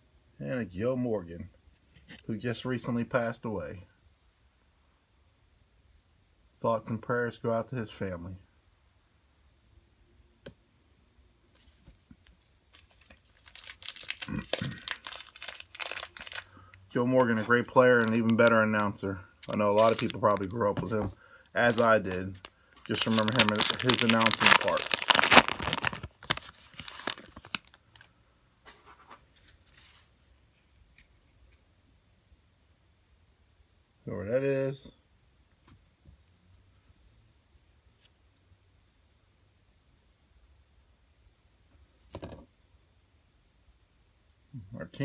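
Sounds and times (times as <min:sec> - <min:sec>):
card wrapping rustling: 0:11.5 - 0:28.1, 0:28.7 - 0:31.1.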